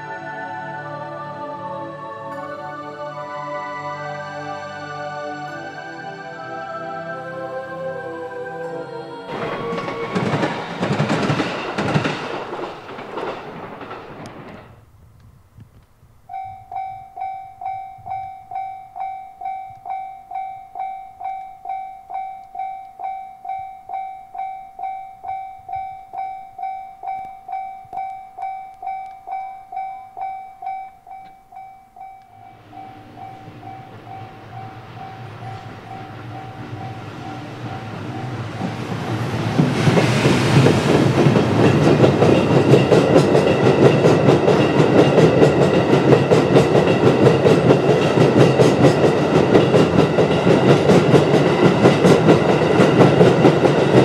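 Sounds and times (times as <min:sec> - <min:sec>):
level-crossing bell ringing: 0:00.0 - 0:01.6, 0:16.3 - 0:39.4
freight train rumble: 0:01.9 - 0:15.6, 0:32.0 - 0:54.0.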